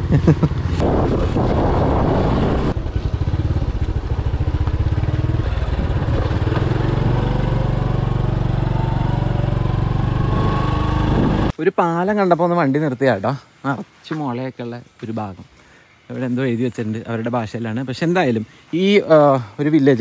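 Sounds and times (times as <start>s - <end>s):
motorcycle engine running: 0.0s - 11.5s.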